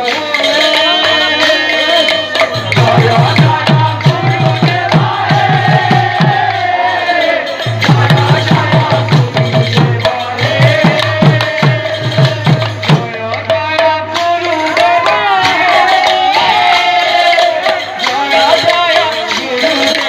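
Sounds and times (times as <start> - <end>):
person singing: 0.0 - 6.0
barrel drums playing: 0.0 - 20.0.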